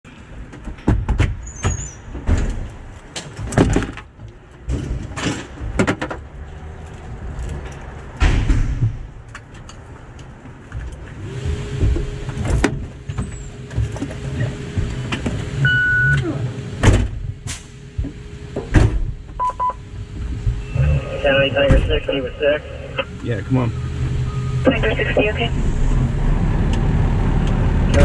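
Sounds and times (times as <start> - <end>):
knocks and clunks: 0.4 - 6.3, 11.8 - 15.4
diesel engine idling: 19.6 - 28.0.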